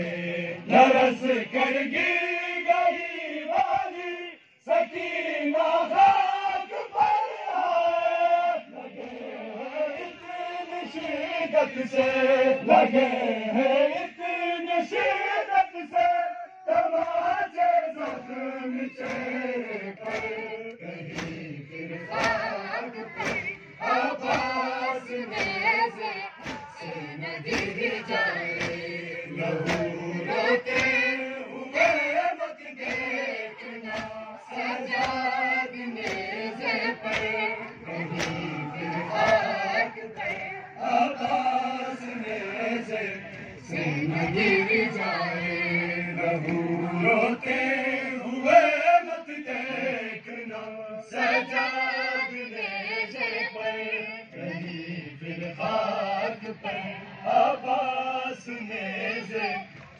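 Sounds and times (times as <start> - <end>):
crowd of men chanting: 0.0 - 59.9
hands slapping on chests: 19.0 - 31.2, 32.8 - 33.2, 33.9 - 40.5.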